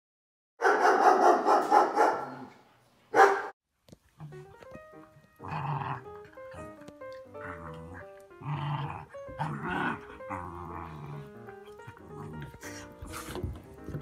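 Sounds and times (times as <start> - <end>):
dog barking: 0.6 - 2.5, 3.1 - 3.5
background music: 4.2 - 14.0
dogs growling: 4.2 - 14.0
dogs vocalising roughly: 5.4 - 14.0.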